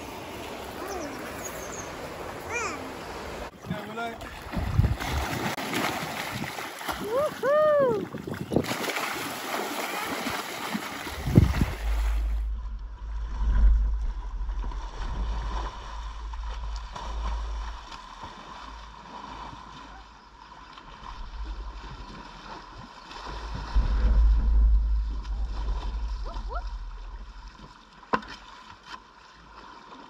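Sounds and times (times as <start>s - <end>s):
water splashing around kayak: 0.0s - 30.0s
steady low rumble: 11.2s - 19.0s, 20.9s - 28.0s.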